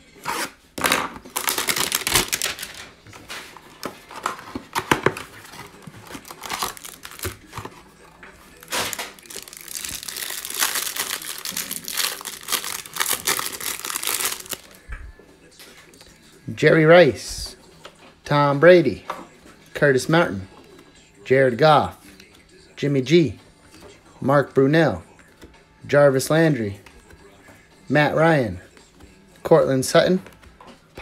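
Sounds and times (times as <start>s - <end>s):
plastic wrapping crinkling and tearing: 0.3s - 3.0s, 3.8s - 7.8s, 8.6s - 14.8s.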